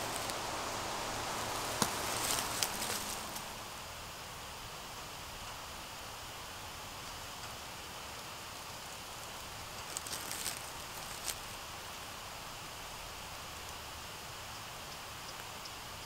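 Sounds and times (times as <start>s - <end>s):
dry leaves crackling: 0.0s - 4.0s, 8.8s - 12.4s
forest ambience hiss: 0.0s - 16.0s.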